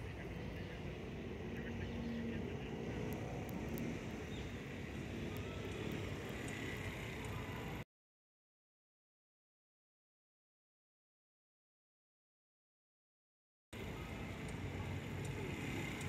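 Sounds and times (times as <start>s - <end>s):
low outdoor rumble: 0.0s - 7.8s, 13.8s - 16.0s
faint high ticks: 5.3s - 7.4s, 14.4s - 16.0s.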